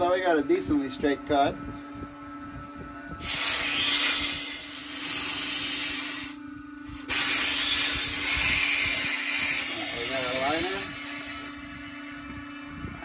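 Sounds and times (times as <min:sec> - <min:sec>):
compressed air hissing: 0:03.2 - 0:12.2.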